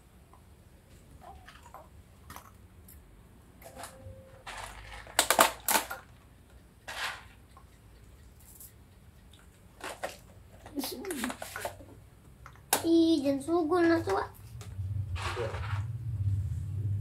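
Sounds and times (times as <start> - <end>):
plastic tub clicks and clatters: 4.5 - 6.0.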